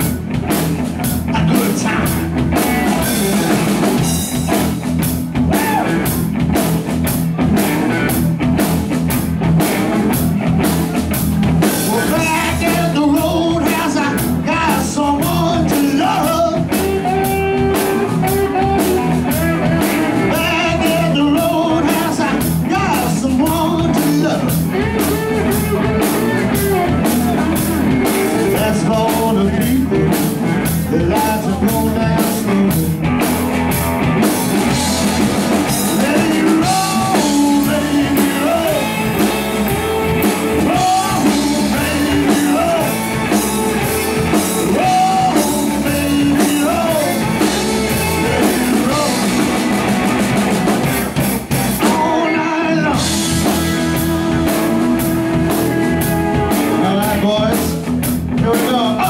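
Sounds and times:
drum kit: 0.0 - 59.0
electric guitars: 0.0 - 59.0
person singing: 1.3 - 3.6, 5.5 - 6.1, 11.7 - 33.0, 35.7 - 49.9, 51.8 - 59.0.

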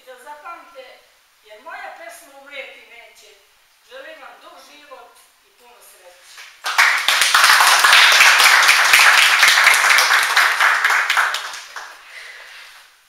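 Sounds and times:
audience applauding: 6.6 - 12.0.

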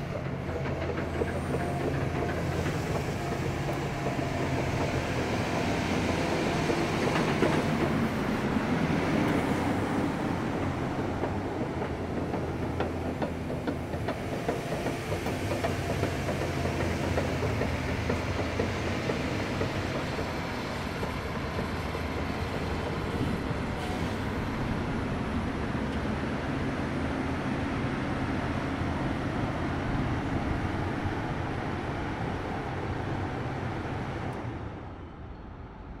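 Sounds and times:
excavator diesel engine running: 0.0 - 25.4.

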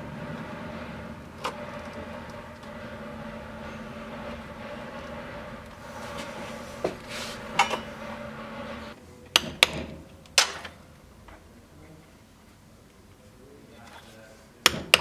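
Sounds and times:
steady hum: 0.0 - 9.0.

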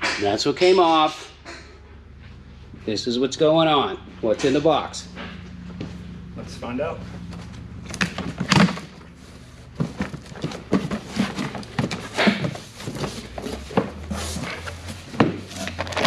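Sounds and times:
cardboard box being unpacked: 8.3 - 16.0.

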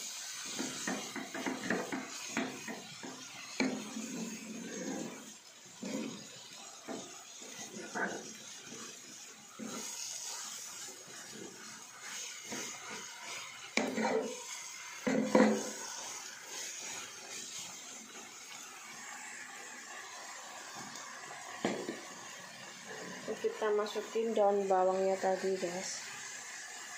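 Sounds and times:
faint sizzle: 0.0 - 26.9
spatula knocks and scrapes in pan: 13.8 - 14.3, 15.0 - 15.7.

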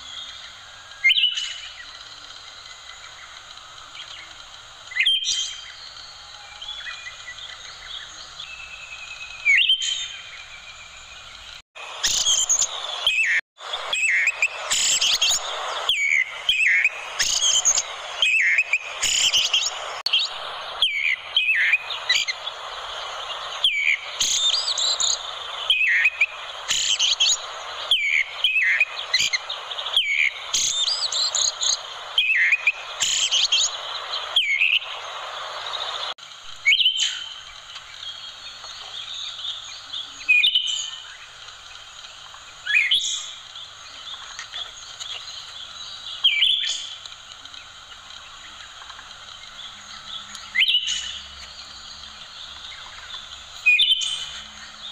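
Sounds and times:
steady hiss: 0.0 - 54.9
thrush singing: 11.8 - 36.2.

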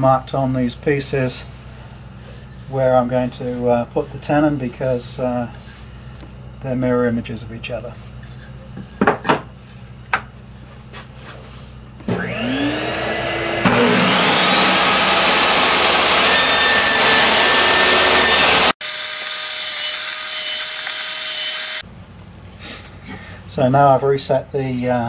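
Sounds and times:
table saw motor whine: 12.1 - 21.8.

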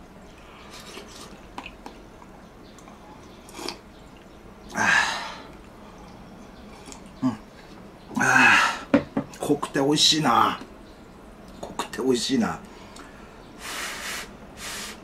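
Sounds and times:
loud breathy mouth sound: 13.6 - 15.0.

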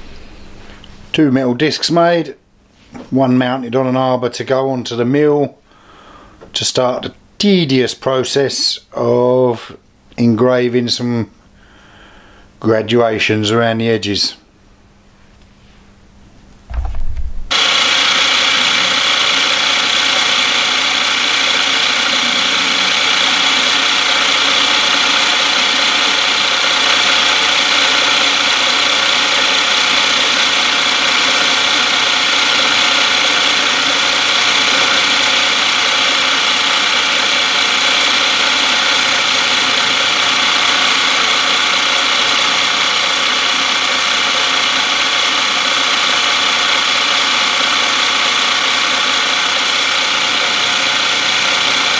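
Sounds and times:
milling machine whine: 17.5 - 51.9.

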